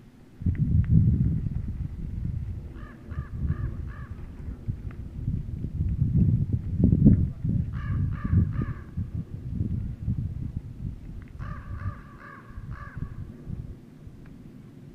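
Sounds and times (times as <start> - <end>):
wind rumble on microphone: 0.0 - 14.9
crow cawing: 2.8 - 4.2, 7.8 - 8.9, 11.4 - 13.2.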